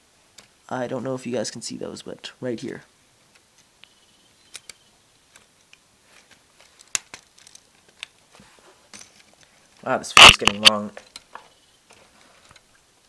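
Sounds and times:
plastic parts clicking together: 4.5s - 8.3s, 10.2s - 12.7s.

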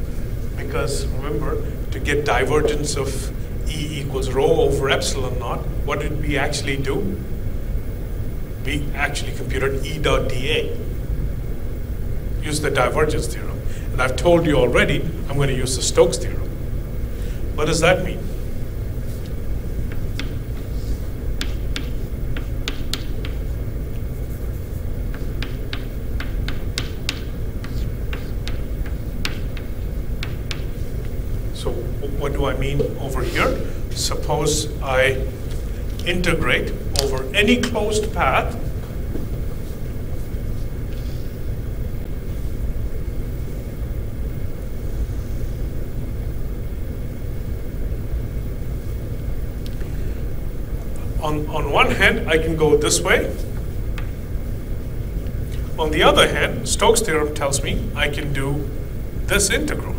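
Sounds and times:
low room rumble: 0.0s - 59.9s
chalk tapping on blackboard: 19.9s - 31.2s.

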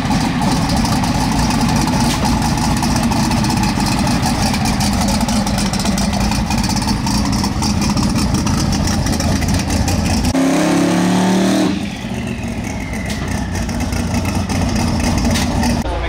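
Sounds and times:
drag car engine idling roughly: 0.0s - 10.4s, 11.8s - 16.0s.

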